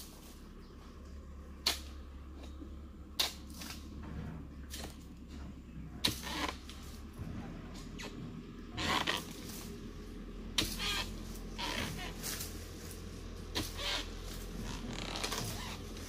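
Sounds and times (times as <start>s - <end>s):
blade chopping palm fronds: 1.6s - 2.6s, 3.2s - 3.9s, 4.6s - 5.1s, 6.0s - 6.9s, 10.6s - 16.0s
frond rustle: 8.8s - 16.0s.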